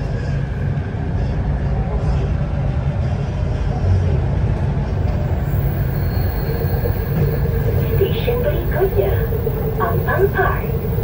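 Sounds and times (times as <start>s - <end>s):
train wheels and motors rumbling: 0.0s - 11.0s
faint whine: 4.9s - 11.0s.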